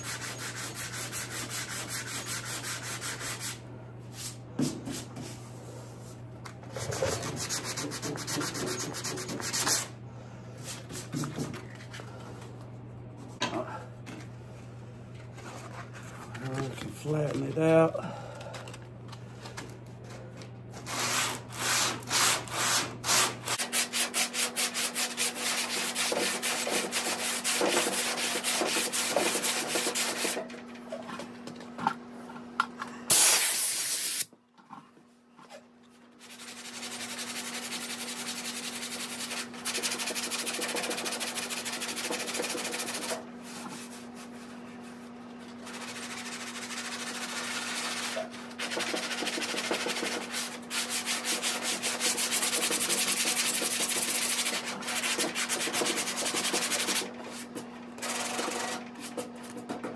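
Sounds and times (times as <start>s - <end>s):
sandpaper scraping: 0.0s - 3.6s, 6.7s - 9.9s, 20.8s - 30.4s, 36.2s - 44.4s, 45.6s - 59.2s.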